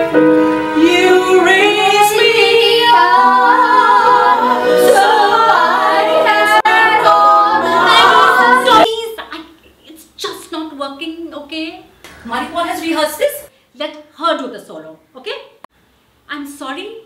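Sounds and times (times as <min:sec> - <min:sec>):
women singing in parts: 0:00.8 - 0:09.0.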